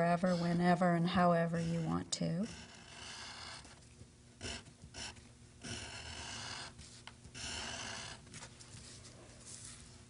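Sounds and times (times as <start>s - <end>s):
drawing tool scratching paper: 0.0s - 3.8s, 4.4s - 8.5s.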